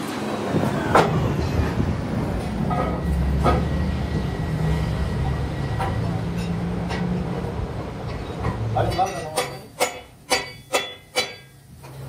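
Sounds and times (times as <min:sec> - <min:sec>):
metal rim clanking: 0:08.0 - 0:12.0.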